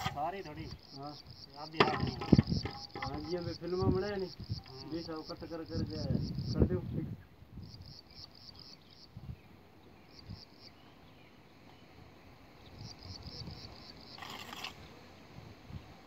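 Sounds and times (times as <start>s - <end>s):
cricket chirping: 0.0s - 6.9s, 7.5s - 16.0s.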